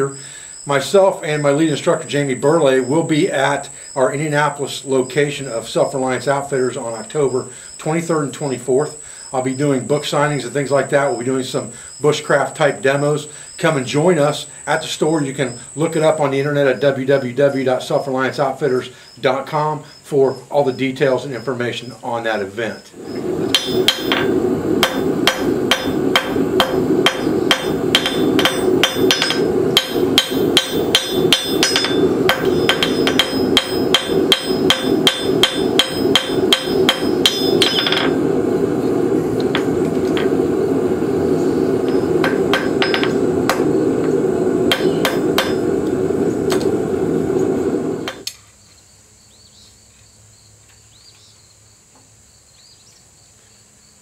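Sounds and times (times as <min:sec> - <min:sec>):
faint insect chirping: 0:00.0 - 0:39.5, 0:40.2 - 0:46.5, 0:47.3 - 0:54.0
steady hum: 0:00.0 - 0:48.4
hammer striking steel on anvil: 0:23.5 - 0:38.2, 0:41.9 - 0:43.7, 0:44.7 - 0:45.7, 0:48.0 - 0:48.3.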